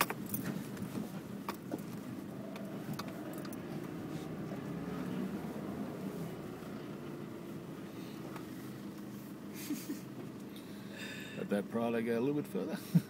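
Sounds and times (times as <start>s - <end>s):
light clicks and rattles: 0.0s - 4.0s
car engine running low: 0.0s - 13.0s
road noise inside car: 0.0s - 13.0s.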